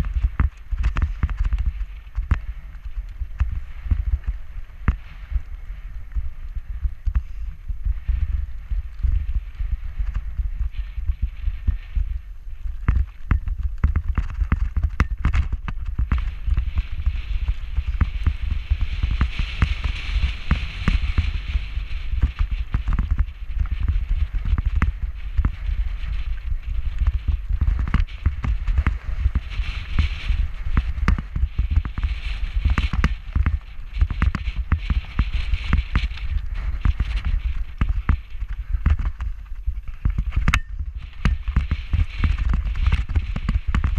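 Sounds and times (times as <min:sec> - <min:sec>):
wind rumble on microphone: 0:00.0 - 0:43.9
bike clattering over stones: 0:12.8 - 0:43.9.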